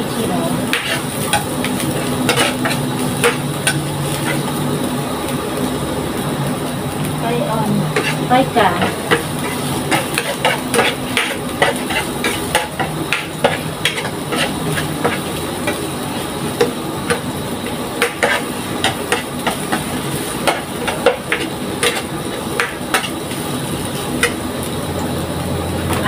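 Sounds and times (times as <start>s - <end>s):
food sizzling in oil: 0.0s - 26.0s
spatula knocking and scraping pan: 0.7s - 1.5s, 2.2s - 4.5s, 7.9s - 15.8s, 18.0s - 23.2s.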